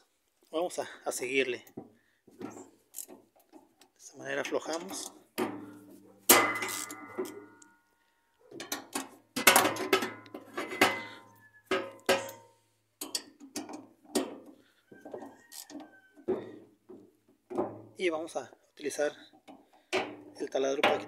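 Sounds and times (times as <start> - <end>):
ratchet wrench clanking on metal: 2.9 - 3.2, 6.3 - 7.6, 8.7 - 14.3.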